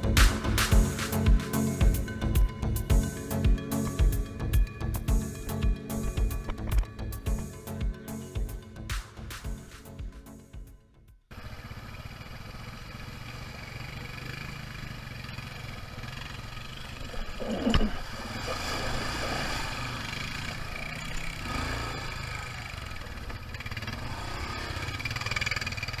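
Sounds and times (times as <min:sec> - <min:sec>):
dirt bike engine revving: 0:18.0 - 0:26.0.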